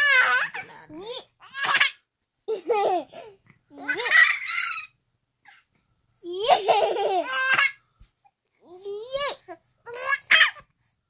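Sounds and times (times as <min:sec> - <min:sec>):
baby laughing: 0:00.0 - 0:04.9, 0:06.3 - 0:07.8.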